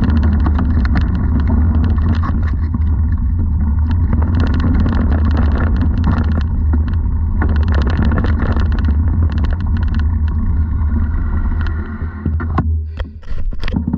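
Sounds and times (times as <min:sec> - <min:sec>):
bike tyres on dirt: 0:00.0 - 0:12.2
wind rumble on microphone: 0:00.0 - 0:13.9.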